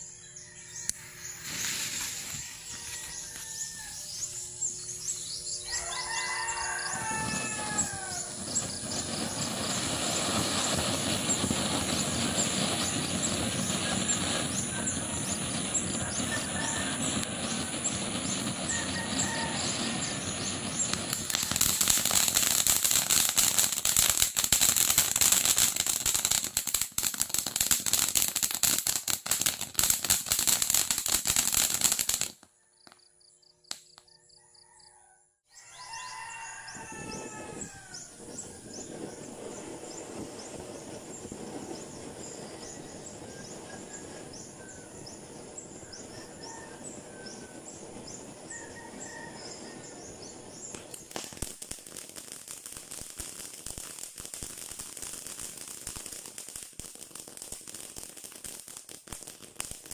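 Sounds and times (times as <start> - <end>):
fountain firework hissing: 1.2 - 4.5, 5.8 - 32.4, 37.4 - 59.9.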